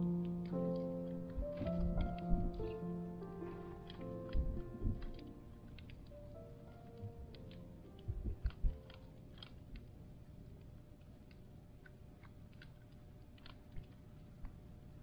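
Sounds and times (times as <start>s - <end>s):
low thumps: 3.4s - 5.4s.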